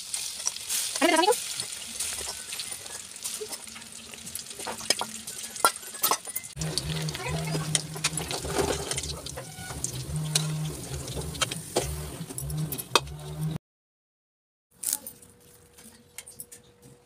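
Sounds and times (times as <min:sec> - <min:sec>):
hot oil bubbling: 0:00.0 - 0:12.9
low hum: 0:06.6 - 0:13.6.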